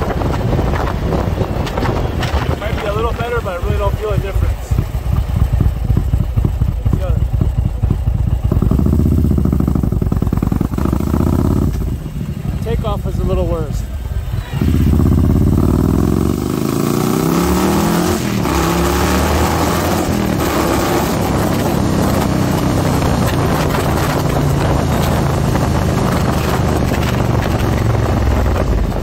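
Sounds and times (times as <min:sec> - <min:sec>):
wind noise on microphone: 0:00.0 - 0:12.2, 0:13.4 - 0:29.0
motorcycle engine accelerating: 0:00.0 - 0:29.0.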